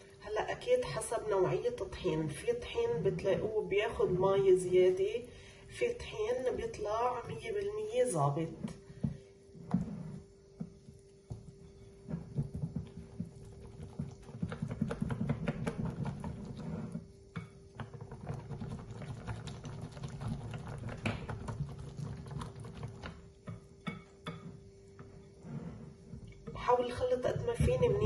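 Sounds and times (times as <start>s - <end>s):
whisk clicking in batter: 12.3s - 24.4s.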